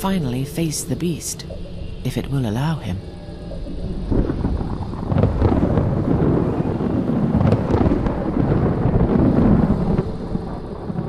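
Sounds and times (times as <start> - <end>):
rolling thunder: 3.6 - 11.0.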